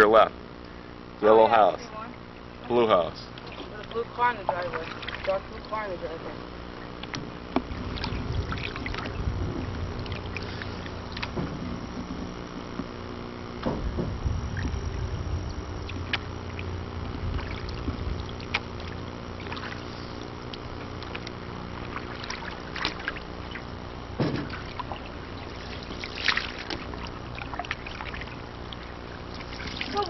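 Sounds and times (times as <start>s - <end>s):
steady low hum: 0.0s - 30.0s
paddle dipping in water: 3.3s - 6.0s, 6.8s - 30.0s
knocks against canoe hull: 13.6s - 14.4s, 24.2s - 24.7s.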